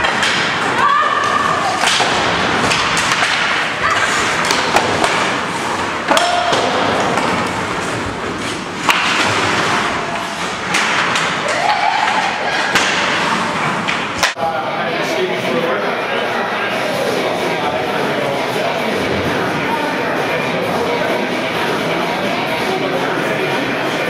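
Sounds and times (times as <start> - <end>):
players shouting: 0.0 - 7.6, 9.4 - 13.5
skates scraping ice: 1.2 - 11.4
sticks and puck knocking: 1.8 - 13.2.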